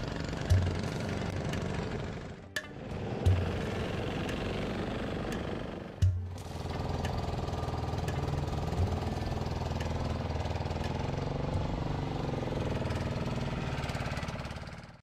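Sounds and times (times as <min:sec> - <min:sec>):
motorboat engine chugging: 0:00.0 - 0:12.0.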